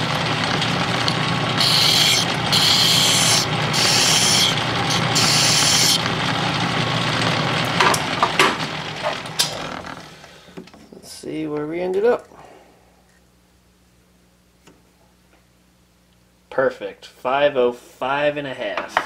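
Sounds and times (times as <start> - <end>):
metal lathe running: 0.0 - 10.1
hand file rasping on metal: 1.6 - 6.1.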